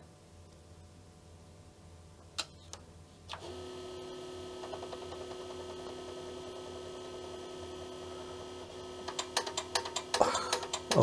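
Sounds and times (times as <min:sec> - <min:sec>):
disk drive motor humming: 0:03.4 - 0:11.0.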